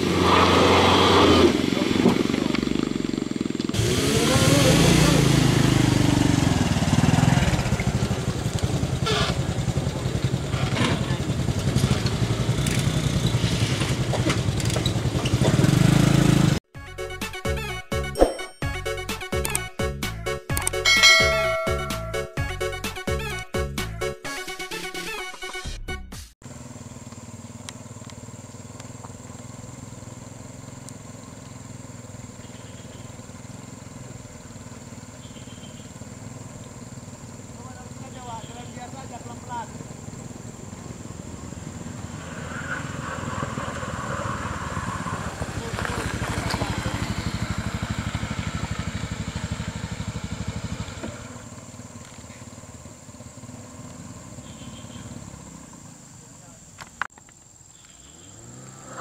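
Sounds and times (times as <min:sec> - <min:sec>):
motorcycle engine in mud: 0:00.0 - 0:16.6, 0:26.4 - 0:59.0
car engine running slowly: 0:04.6 - 0:16.5, 0:26.4 - 0:42.4, 0:43.3 - 0:57.0.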